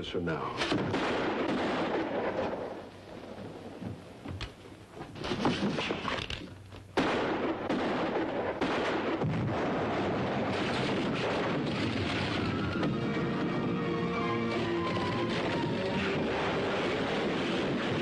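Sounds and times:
sharp cracks: 0:00.6 - 0:03.0, 0:04.3 - 0:13.6, 0:14.4 - 0:18.0
dynamite explosion: 0:00.6 - 0:03.4, 0:07.0 - 0:18.0
dramatic music: 0:12.5 - 0:17.2.

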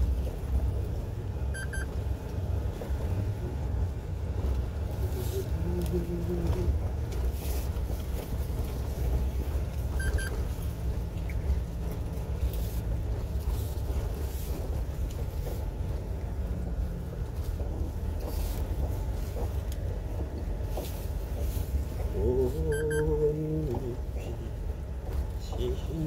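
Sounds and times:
truck engine under load: 0:00.0 - 0:26.0
tyre and road noise: 0:00.0 - 0:26.0.

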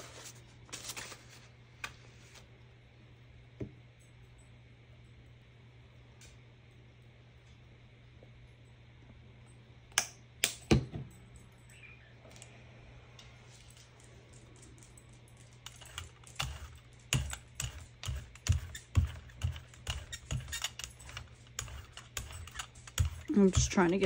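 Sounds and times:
painting tools tapping and clicking: 0:15.6 - 0:24.0.

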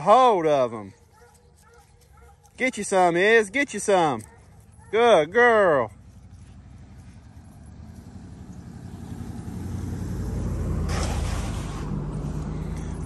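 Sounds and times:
vehicle engine humming: 0:00.6 - 0:13.0.

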